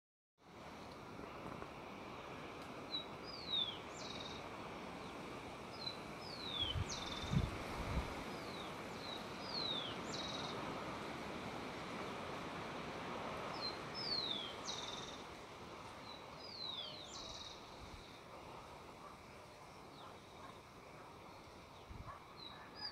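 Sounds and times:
outdoor background noise: 0.4 - 22.9
songbird song: 0.4 - 22.9.

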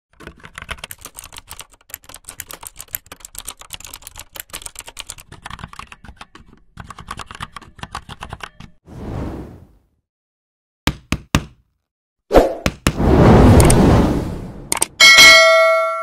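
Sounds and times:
fast typing on keyboard: 0.1 - 8.8.

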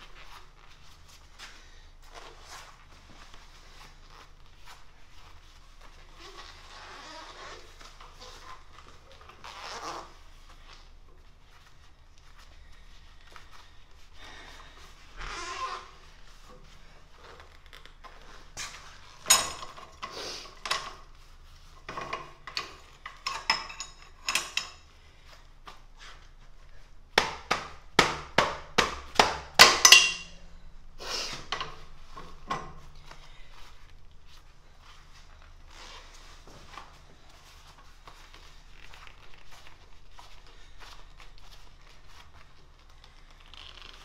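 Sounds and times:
metal ring roller clanking: 19.2 - 20.0, 21.9 - 24.8, 29.8 - 30.4.

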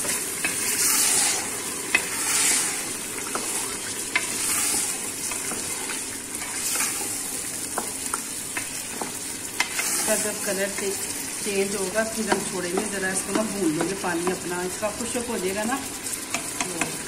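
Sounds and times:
meat sizzling in hot oil: 0.0 - 17.0
wooden spoon tapping a pot: 7.6 - 9.9, 12.1 - 14.8, 16.2 - 17.0.

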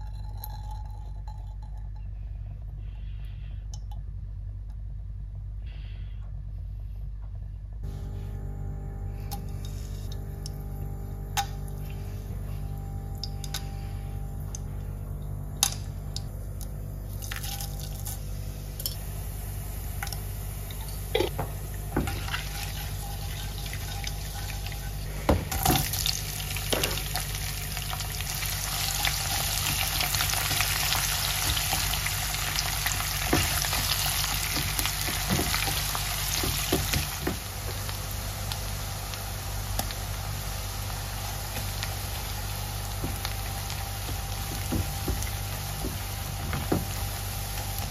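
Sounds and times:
onions frying hiss: 17.1 - 47.9
spices sizzling in oil: 17.1 - 47.9.

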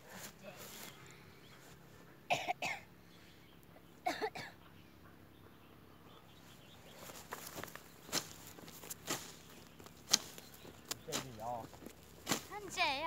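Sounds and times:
blade swishing through grass: 7.0 - 11.5, 12.1 - 12.9.

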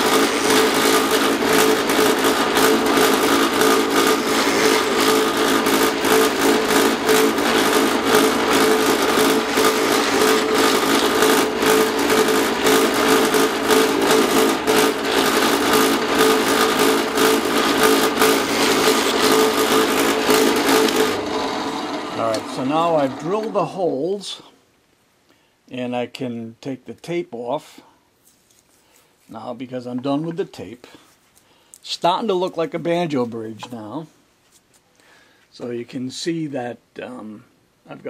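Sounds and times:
drill press motor hum: 0.0 - 23.8.

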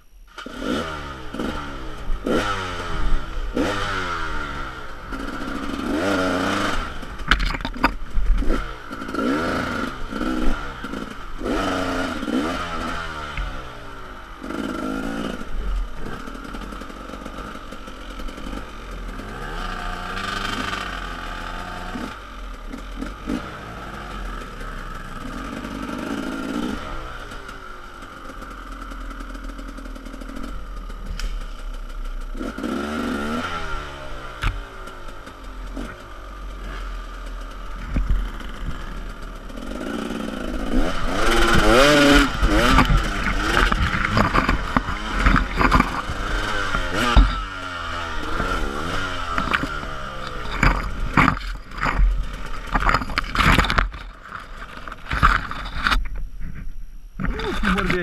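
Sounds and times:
motorcycle engine revving: 0.3 - 58.0
bike knocking on rough ground: 7.2 - 9.2, 37.7 - 39.0, 40.6 - 58.0.

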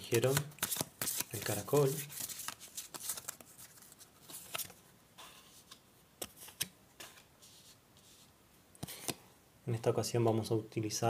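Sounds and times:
cards being shuffled: 0.2 - 4.8, 5.4 - 8.2.

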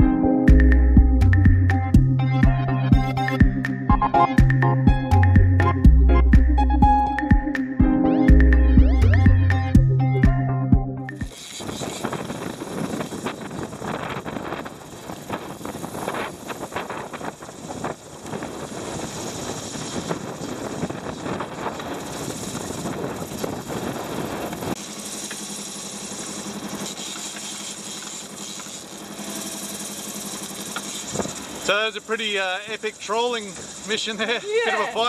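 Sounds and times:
steady mechanical drone: 0.0 - 35.0
wind buffeting microphone: 11.3 - 24.8.

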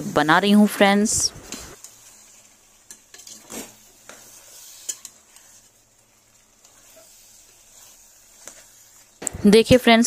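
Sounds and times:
faint sizzling in oil: 0.0 - 10.0
ladle scraping metal pot: 1.4 - 9.2.

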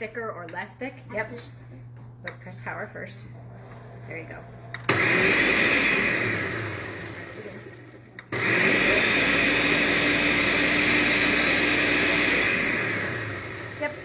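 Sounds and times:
blender motor running: 4.7 - 14.0.

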